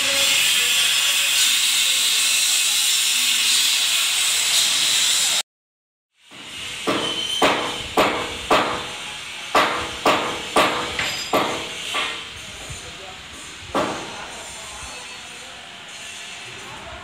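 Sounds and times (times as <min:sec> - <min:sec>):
hammer striking metal: 0:06.3 - 0:12.3, 0:13.4 - 0:14.2.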